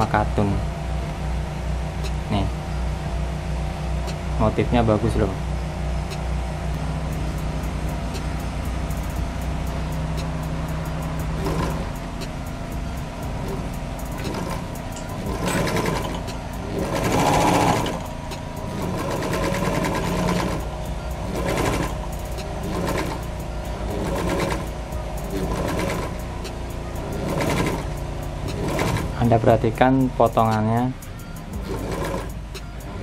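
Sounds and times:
overlock machine stitching rattle: 10.9 - 29.6, 31.5 - 33.0.

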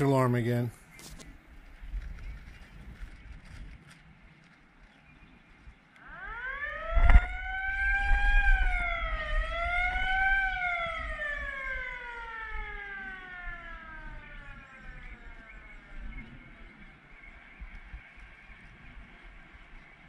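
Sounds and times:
fire siren wailing: 6.0 - 19.7.

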